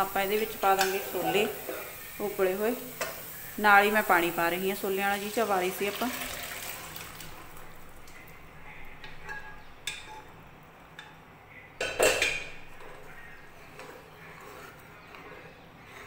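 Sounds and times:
metal cookware clinking: 0:00.0 - 0:03.3, 0:09.0 - 0:10.4, 0:11.8 - 0:14.6
ladle stirring chickpeas: 0:12.6 - 0:16.0.

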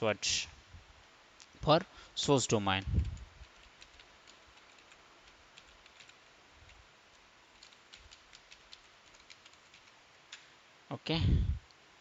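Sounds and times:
keyboard typing clicks: 0:03.0 - 0:10.5.

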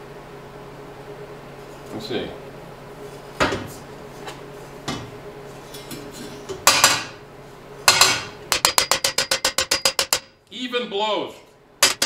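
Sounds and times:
hammer striking metal tubes: 0:07.9 - 0:10.4.

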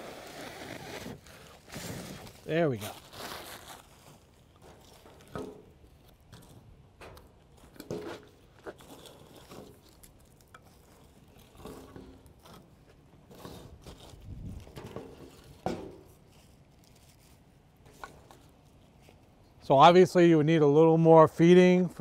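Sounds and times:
burning paper crackling: 0:00.0 - 0:06.8, 0:07.4 - 0:19.4
firewood clunking on metal: 0:04.6 - 0:10.7, 0:11.5 - 0:12.7, 0:14.6 - 0:16.3.

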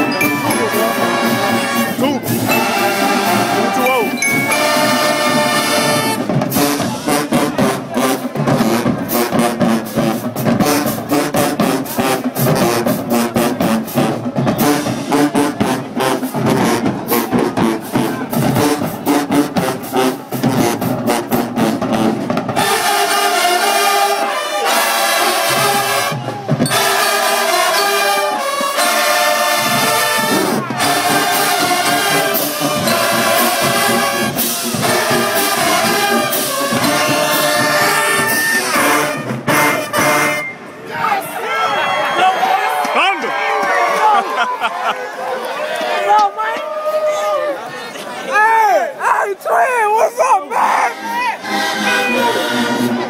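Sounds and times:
drumline percussion: 0:00.0 - 0:40.7
brass band chords: 0:00.0 - 0:41.3, 0:50.5 - 0:53.0.

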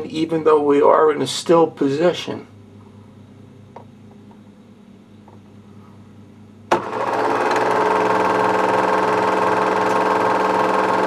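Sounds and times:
faint low projector hum: 0:00.0 - 0:06.8
projector motor whirring: 0:06.7 - 0:11.0.

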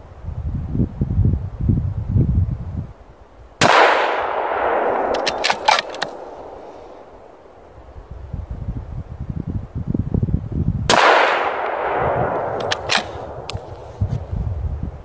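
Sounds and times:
wind rumbling on microphone: 0:00.0 - 0:15.0
rifle shot echoing: 0:03.6 - 0:07.3, 0:10.9 - 0:13.8
sharp clicks: 0:05.1 - 0:06.4, 0:12.4 - 0:13.9.

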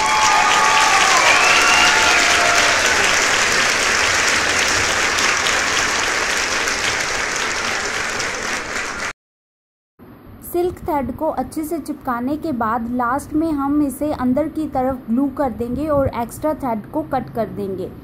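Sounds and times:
crowd clapping: 0:00.0 - 0:09.1
people cheering: 0:00.0 - 0:09.1.

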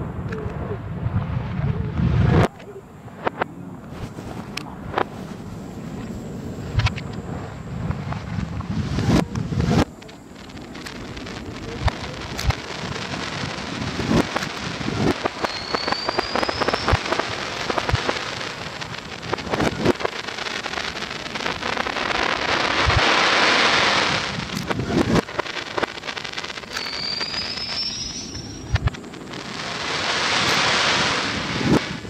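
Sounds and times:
reversed fireworks bangs: 0:00.0 - 0:32.0
reversed fireworks crackling: 0:00.0 - 0:32.0
rising whistle: 0:15.4 - 0:17.0, 0:26.7 - 0:28.8.

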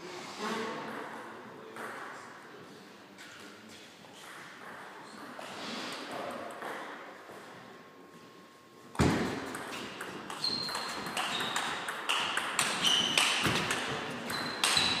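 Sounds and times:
table tennis ball hitting bats: 0:09.0 - 0:15.0
short high squeaks: 0:10.4 - 0:11.8, 0:12.7 - 0:13.4.

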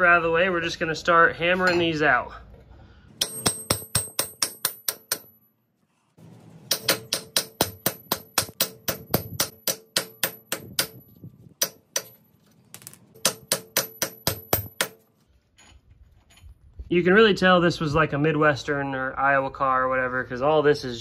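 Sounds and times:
hammer striking steel studs: 0:03.2 - 0:05.4, 0:06.6 - 0:15.1.

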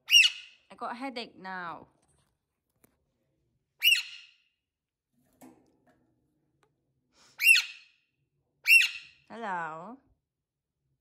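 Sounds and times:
parakeet screeching: 0:00.0 - 0:00.6, 0:03.8 - 0:04.4, 0:07.4 - 0:07.9, 0:08.6 - 0:09.2.

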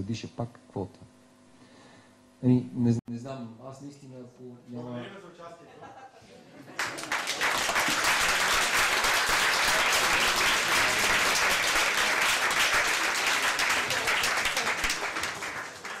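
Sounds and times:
audience applauding: 0:06.6 - 0:16.0.

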